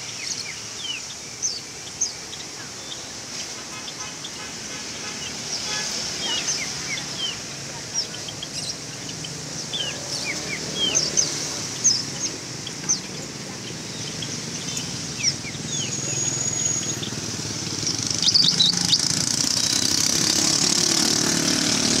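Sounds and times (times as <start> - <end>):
low traffic rumble: 0.0 - 22.0
songbirds chirping: 0.0 - 22.0
high bird whistle: 15.7 - 17.2.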